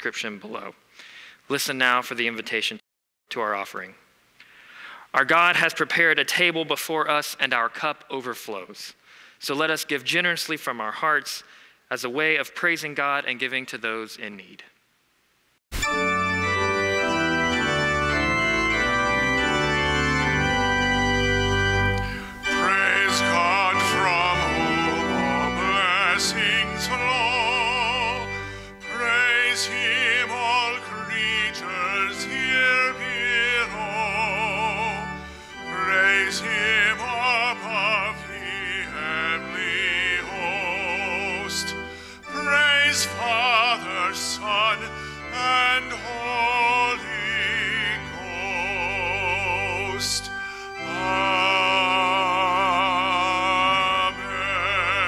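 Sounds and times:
instrumental accompaniment: 15.7s - 55.0s
operatic solo singing: 21.9s - 55.0s.

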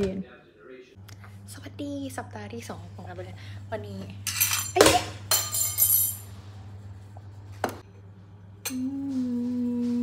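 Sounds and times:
steady hum: 0.6s - 10.0s
dishes and glassware clinking: 4.3s - 6.3s.

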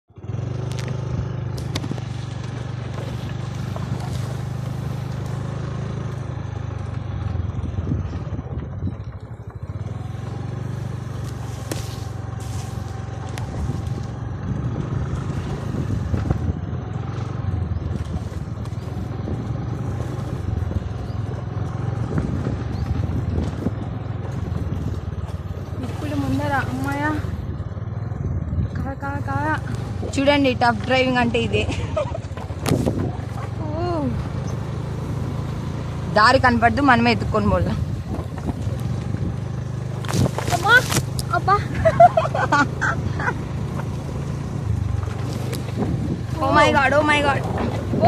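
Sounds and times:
scooter engine running: 0.1s - 48.0s
plants scraping: 1.6s - 5.5s, 11.0s - 14.2s, 39.8s - 42.2s.

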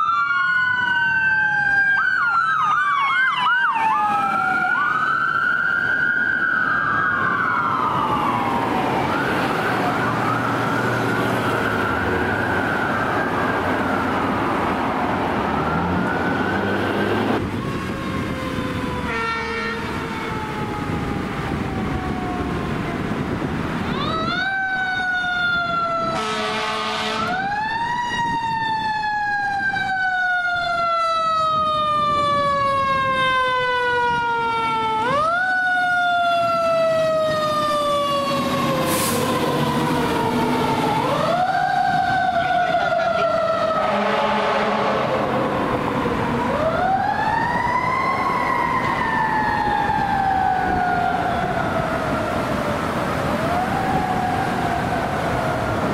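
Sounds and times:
fire engine siren wailing: 0.0s - 55.9s.

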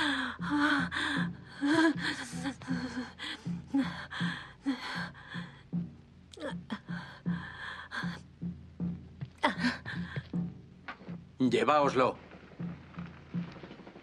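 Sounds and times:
woman gasping and sobbing: 0.0s - 8.5s, 9.4s - 10.5s.

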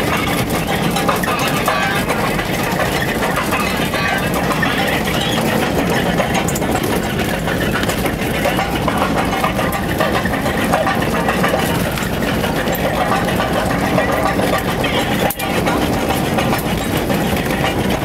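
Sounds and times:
tyres and rattle on gravel: 0.0s - 18.0s
vehicle engine running: 0.0s - 18.0s.

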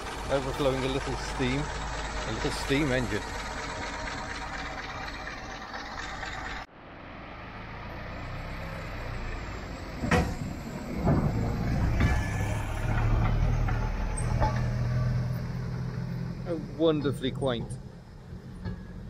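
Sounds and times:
engine running low hum: 0.0s - 19.0s
sharp clunks: 10.0s - 15.2s.

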